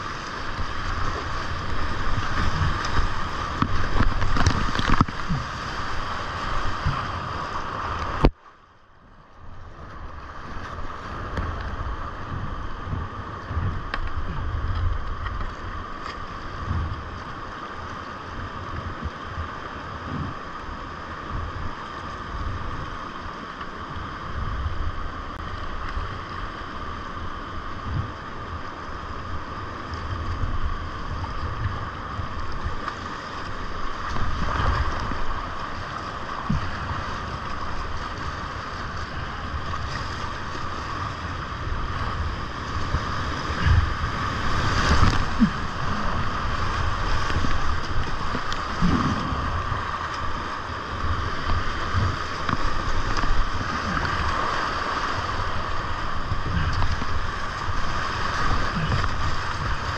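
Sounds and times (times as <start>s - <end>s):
paddle splashes and thumps: 0.0s - 7.2s, 42.8s - 59.9s
rushing whitewater: 0.0s - 59.9s.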